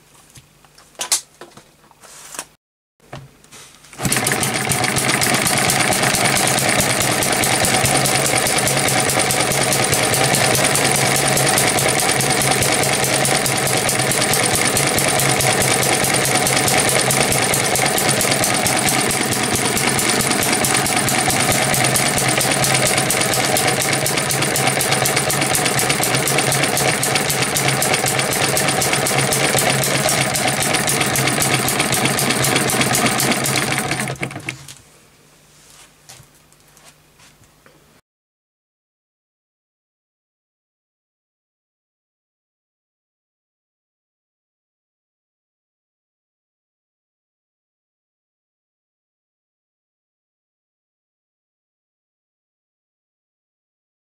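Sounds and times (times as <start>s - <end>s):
small gas engine running: 3.9s - 34.7s.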